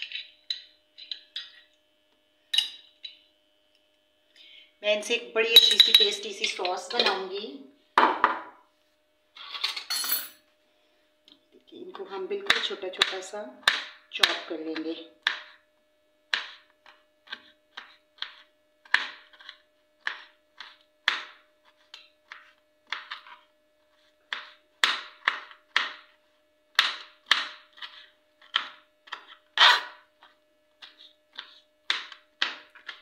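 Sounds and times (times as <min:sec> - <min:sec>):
knife chopping on plastic board: 0:12.5 - 0:15.6, 0:16.3 - 0:23.4, 0:24.3 - 0:26.1, 0:26.7 - 0:29.4, 0:30.8 - 0:33.0.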